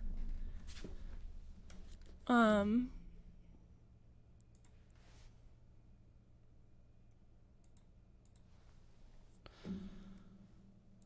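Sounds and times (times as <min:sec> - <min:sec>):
computer mouse clicks: 0:04.4 - 0:04.9, 0:07.1 - 0:08.5.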